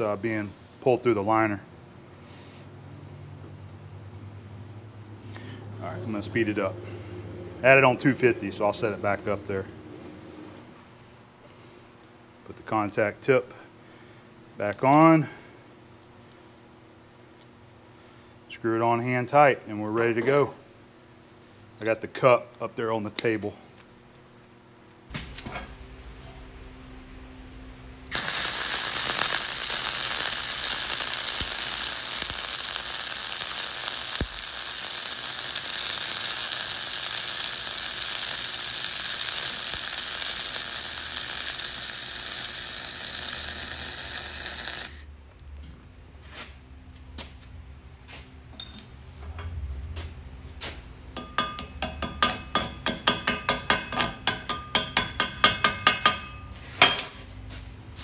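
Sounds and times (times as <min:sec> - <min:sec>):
welding arc buzzing: 0:00.0 - 0:00.5, 0:05.4 - 0:10.6, 0:27.8 - 0:45.2, 0:51.2 - 0:57.3
chipping hammer striking metal: 0:51.2 - 0:57.0.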